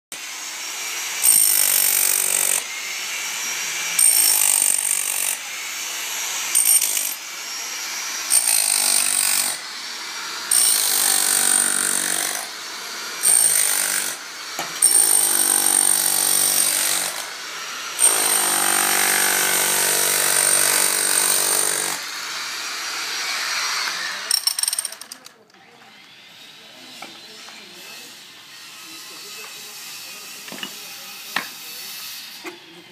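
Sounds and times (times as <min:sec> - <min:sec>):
demolition hammer chiselling plaster: 0:00.9 - 0:02.7, 0:03.9 - 0:05.4, 0:06.4 - 0:07.2, 0:08.3 - 0:09.6, 0:10.3 - 0:17.4, 0:18.0 - 0:22.1.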